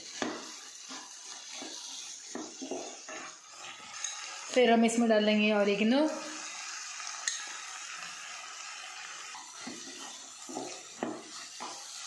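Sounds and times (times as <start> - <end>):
spatula stirring and scraping: 0.0 - 4.6, 9.2 - 12.0
vegetables sizzling in a pan: 0.0 - 12.0.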